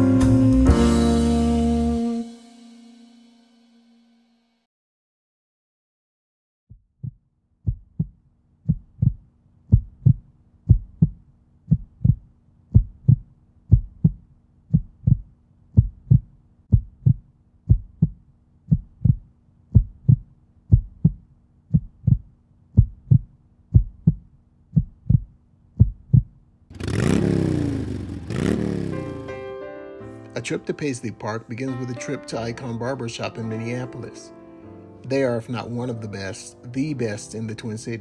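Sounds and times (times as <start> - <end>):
heartbeat thumps: 6.7 - 26.4.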